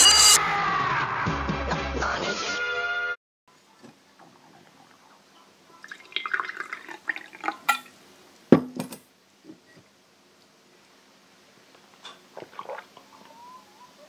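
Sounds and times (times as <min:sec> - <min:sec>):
water pouring into a glass: 0:05.8 - 0:07.9, 0:12.4 - 0:13.0
glass and bottle clinking on wood: 0:07.5 - 0:07.9.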